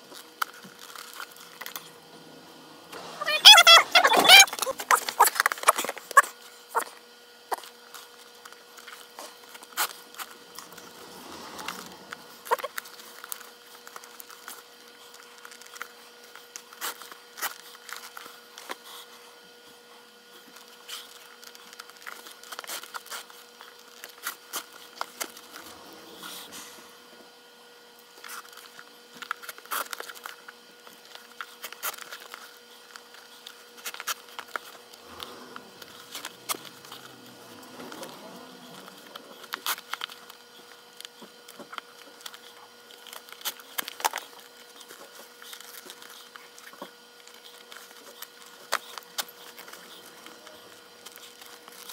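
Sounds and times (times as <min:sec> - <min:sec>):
faint steady hum: 0:00.0 - 0:51.9.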